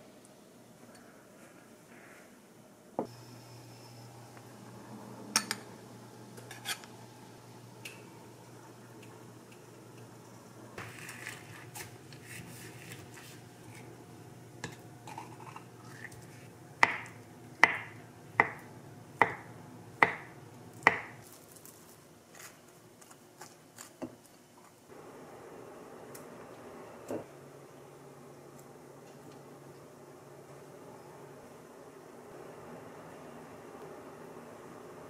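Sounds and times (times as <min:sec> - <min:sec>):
knife scraping on plate: 0:06.4 - 0:06.9.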